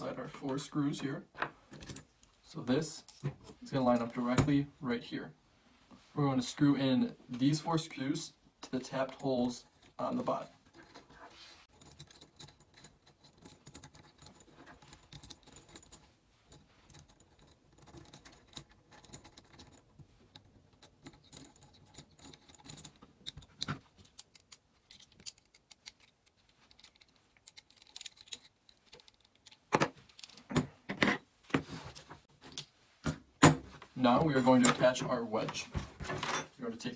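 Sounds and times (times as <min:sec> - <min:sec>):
small parts clicking and rattling: 0:08.8 - 0:30.8.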